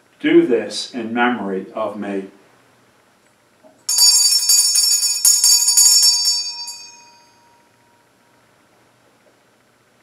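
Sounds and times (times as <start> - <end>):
altar bells ringing: 3.9 - 7.8.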